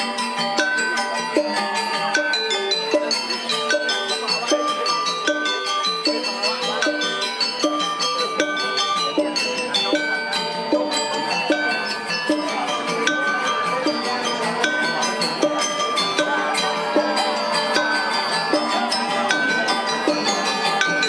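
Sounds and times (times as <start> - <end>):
gamelan music: 0.0 - 21.0.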